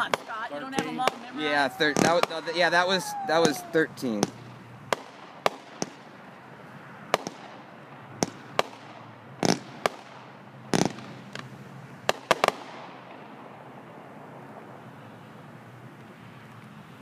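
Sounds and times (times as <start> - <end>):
fireworks bangs: 0.0 - 6.3, 7.1 - 13.3.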